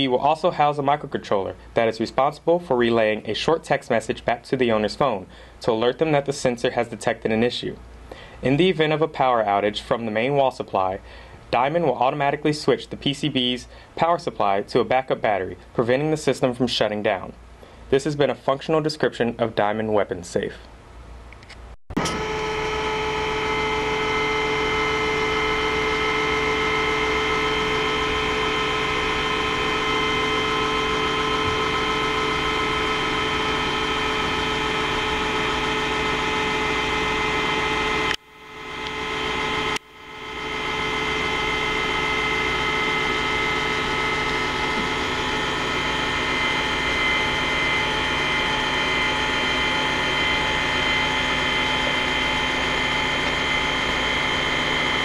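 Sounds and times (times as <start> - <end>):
linear actuator motor whine: 22.0 - 55.0.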